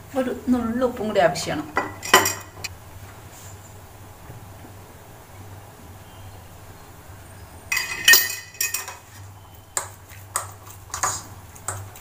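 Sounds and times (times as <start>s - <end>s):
ringing metal clink: 7.7s - 9.0s.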